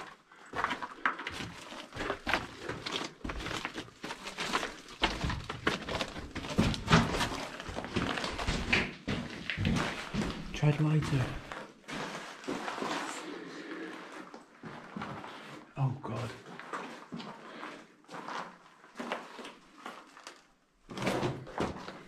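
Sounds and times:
footsteps scrambling over rock: 0.0 - 13.1.

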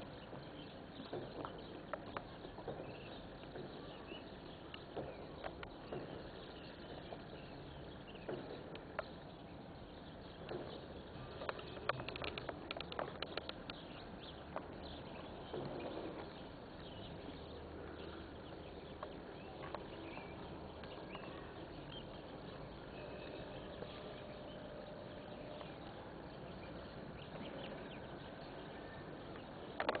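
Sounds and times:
faint bird chirps: 0.0 - 30.0.

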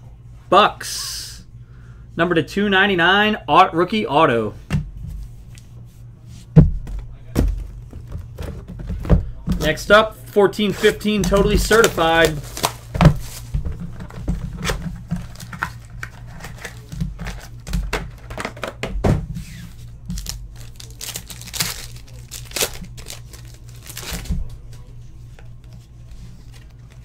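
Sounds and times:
cardboard and cards rustling: 6.6 - 10.0, 10.6 - 27.0
wrapper crinkling and tearing: 10.8 - 13.4, 15.2 - 18.6, 20.1 - 24.3.

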